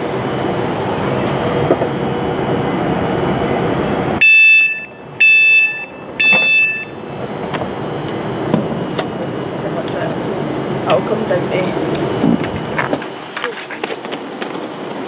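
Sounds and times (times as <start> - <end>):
train vestibule hum: 0.0 - 15.0
electronic door warning beeps: 4.2 - 7.1.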